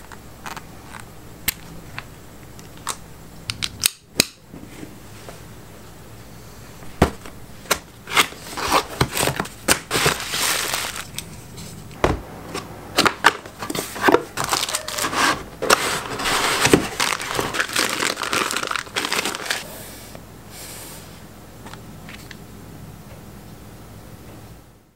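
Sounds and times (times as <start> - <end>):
wrapping crinkling: 7.6 - 11.5, 13.2 - 19.6
cardboard scraping and sliding: 13.5 - 19.6.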